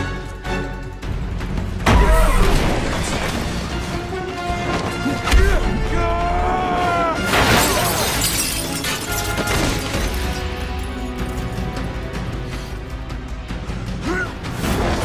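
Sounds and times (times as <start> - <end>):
dramatic film score: 0.0 - 15.0
crash with glass shattering: 1.9 - 3.7, 7.3 - 11.4.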